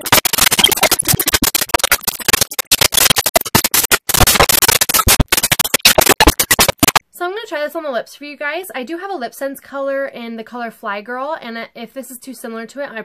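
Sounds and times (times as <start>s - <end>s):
harsh crackling and clicking: 0.0s - 7.0s.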